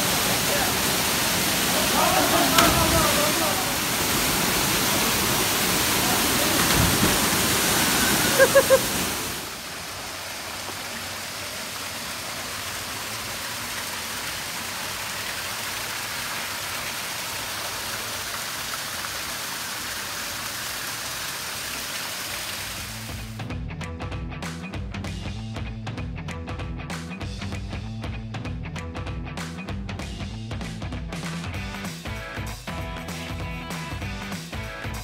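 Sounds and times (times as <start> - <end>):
waterfall rushing: 0.0 - 23.3.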